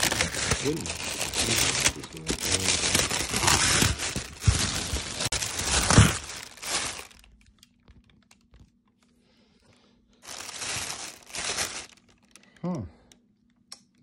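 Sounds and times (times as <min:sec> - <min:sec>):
plastic and cardboard rustling: 0:00.0 - 0:08.7, 0:10.2 - 0:12.4.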